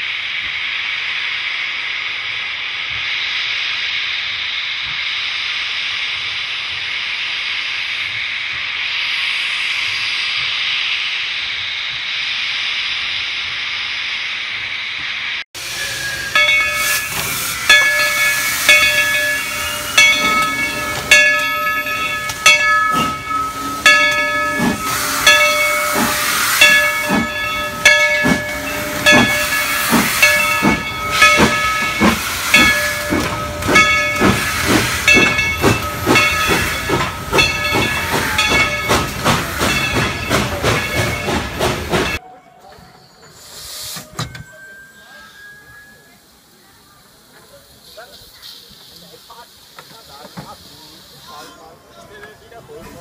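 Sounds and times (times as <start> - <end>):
steam hissing: 0.0 - 42.2, 42.8 - 53.0
steam locomotive chuffing: 0.0 - 53.0
steam whistle: 15.6 - 35.2.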